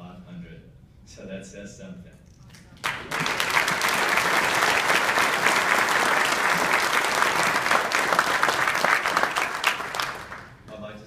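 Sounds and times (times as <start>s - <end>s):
audience applauding: 2.8s - 10.7s.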